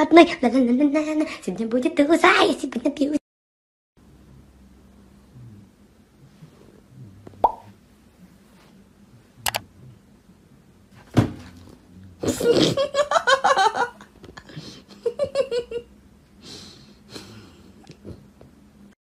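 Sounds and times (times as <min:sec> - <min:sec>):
low room hum: 0:00.0 - 0:03.2, 0:04.0 - 0:19.0
person laughing: 0:12.2 - 0:15.9.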